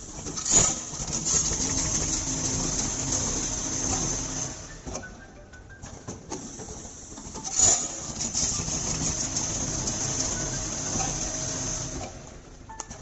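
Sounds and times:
machine mechanical clatter: 0.0 - 5.2, 5.8 - 13.0.

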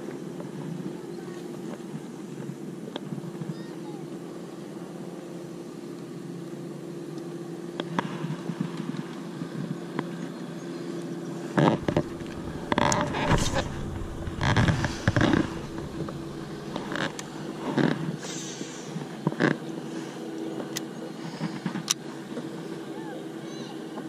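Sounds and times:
boat motor humming: 0.0 - 24.0
wind buffeting microphone: 11.6 - 18.3.

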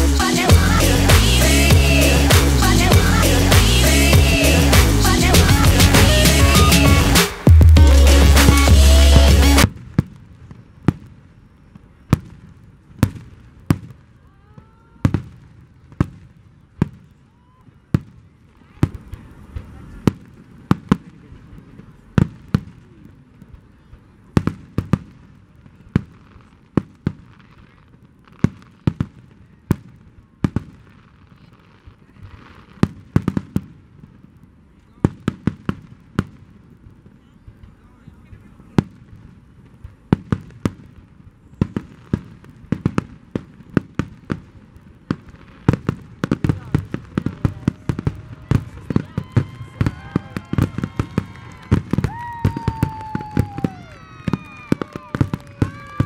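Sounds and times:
long high tones: 0.0 - 9.6
fireworks bangs: 0.0 - 17.2, 17.9 - 56.0
faint fireworks crackling: 0.0 - 56.0.

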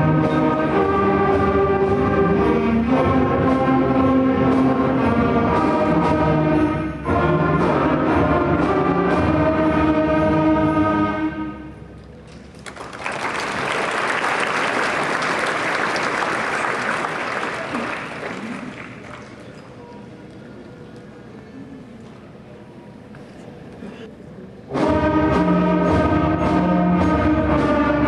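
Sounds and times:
concert band playing: 0.0 - 11.8, 24.7 - 28.0
audience applause: 12.3 - 19.5.

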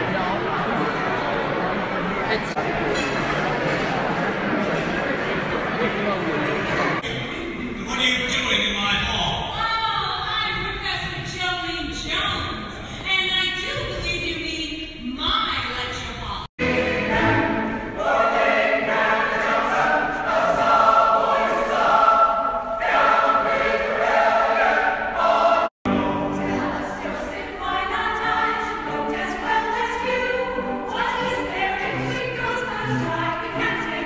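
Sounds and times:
choir singing: 16.6 - 34.0.

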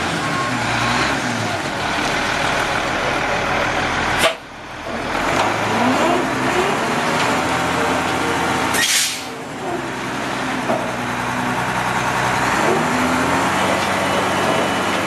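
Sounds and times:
diesel truck engine running: 0.0 - 15.0
air hiss: 8.8 - 9.3.

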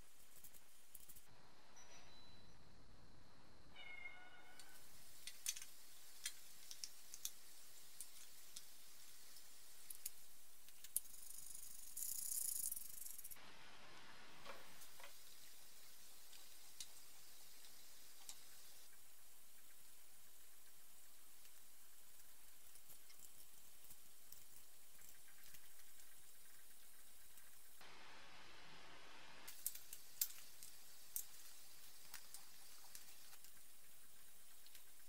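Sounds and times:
small metal parts clicking: 4.6 - 13.4, 29.5 - 33.6.

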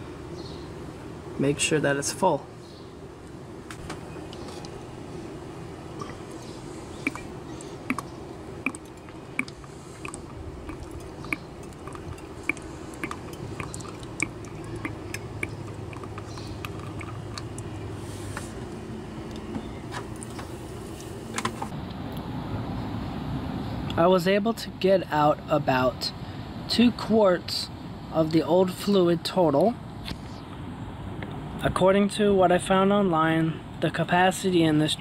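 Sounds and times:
hand pump slurping fluid: 6.0 - 18.0.

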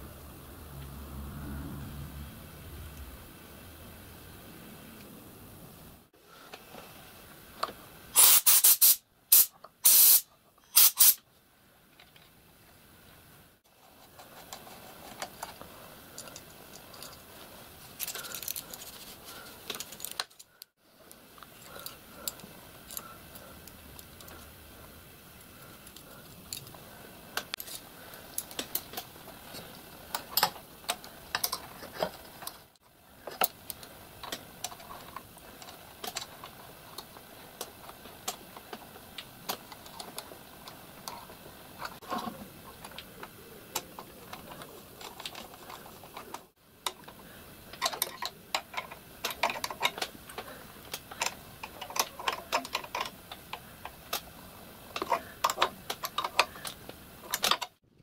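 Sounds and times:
hissing air blasts: 8.2 - 11.2.

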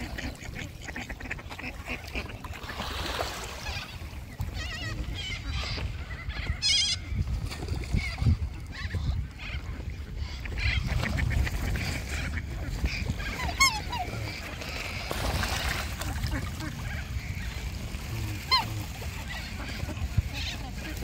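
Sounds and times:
goose honking: 10.6 - 21.0.

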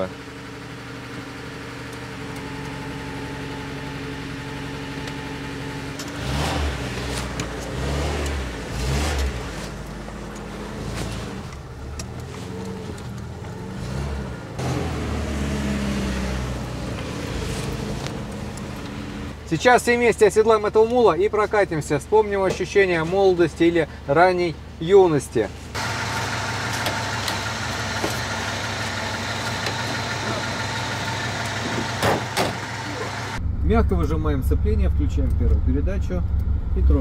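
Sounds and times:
car engine idling unevenly: 0.0 - 8.8, 16.6 - 37.0.

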